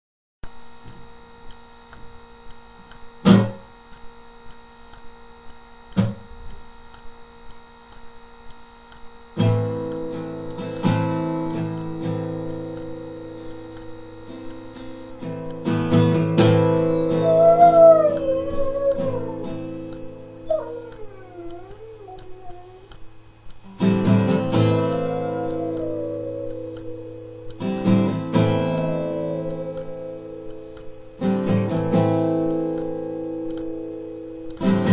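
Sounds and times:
dog howling: 17.0 - 22.9, 24.5 - 27.2, 28.7 - 30.3
chords ringing: 24.3 - 30.8.

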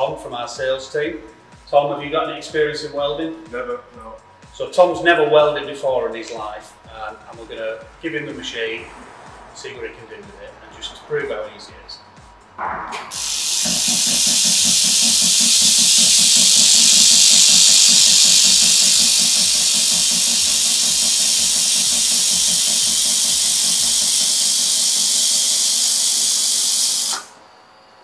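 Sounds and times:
laser welder hissing: 13.0 - 27.4.

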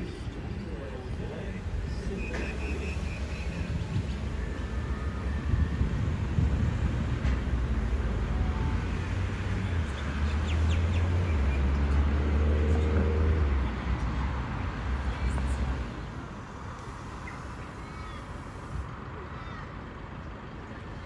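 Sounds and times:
electric train rumbling: 0.0 - 9.9.

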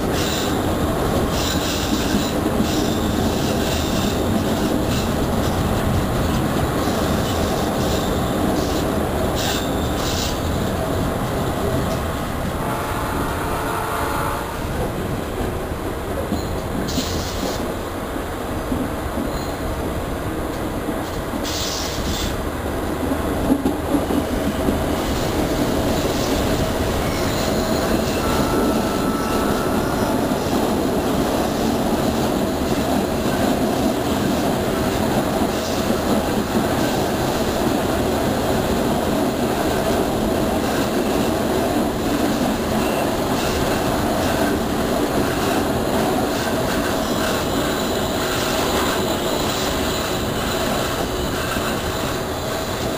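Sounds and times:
train wheels rumbling on rails: 0.0 - 52.9
high wheel squeal: 1.3 - 4.2, 9.4 - 10.5, 26.2 - 30.2.

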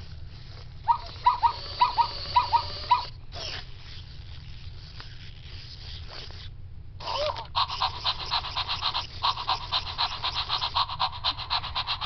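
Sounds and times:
robot toy whine: 0.9 - 12.0
fast electronic pulsing: 7.0 - 12.0.

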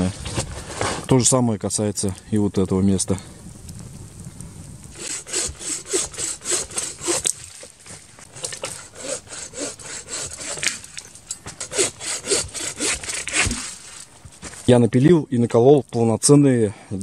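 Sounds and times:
hand saw rasping through wood: 5.0 - 7.3, 8.4 - 10.9, 11.6 - 14.0.

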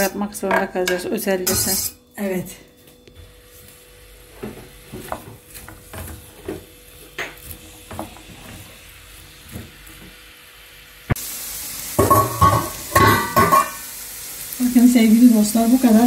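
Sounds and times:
spoon scraping and tapping pan: 0.5 - 1.9, 12.0 - 13.8
onions sizzling in oil: 1.4 - 2.0, 3.2 - 16.0.

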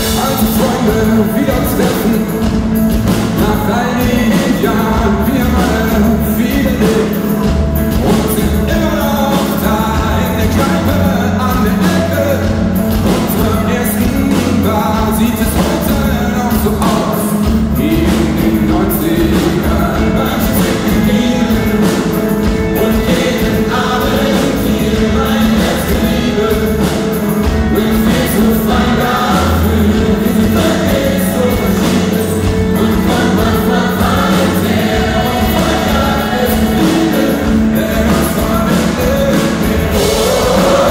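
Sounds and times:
live pop-rock band: 0.0 - 40.9
choir singing: 17.7 - 40.9.

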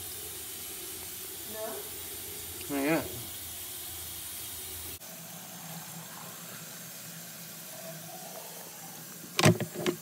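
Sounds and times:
water draining from a sink: 0.0 - 10.0.

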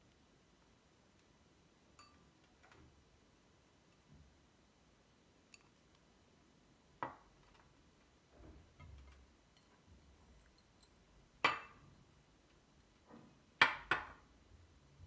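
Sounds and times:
glass clink with ring: 2.0 - 2.2
glass bowls ticking: 2.0 - 2.3.

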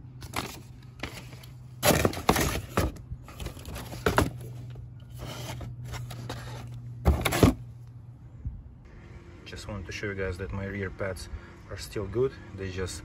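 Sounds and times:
steady low hum: 0.0 - 13.0
paper and packaging rustling: 0.2 - 7.6.

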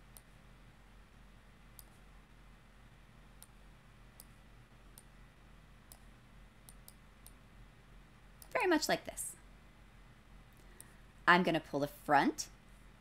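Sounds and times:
low room tone hum: 0.0 - 13.0
computer mouse clicks: 0.1 - 0.4, 1.8 - 2.0, 3.4 - 3.6, 4.2 - 5.2, 5.9 - 7.4, 10.6 - 11.0.

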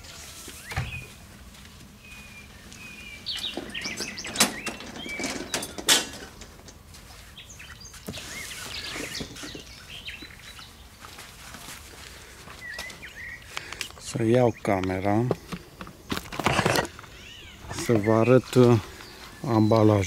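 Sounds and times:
small birds chirping: 0.5 - 20.0
sharp knocks and rustles: 3.3 - 7.2, 15.3 - 18.1.

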